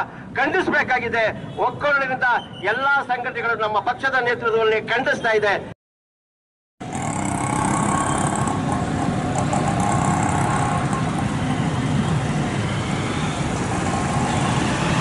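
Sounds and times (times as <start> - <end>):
traffic and road noise: 0.0 - 5.8, 6.8 - 15.0
engine hum: 6.8 - 15.0.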